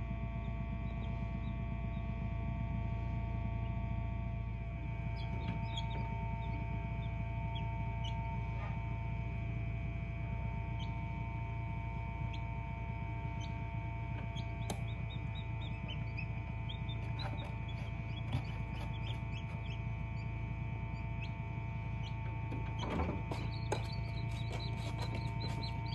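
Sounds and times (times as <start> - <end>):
incubator hum: 0.0 - 25.9
chicks peeping: 0.4 - 2.2, 4.9 - 8.8, 10.6 - 25.9.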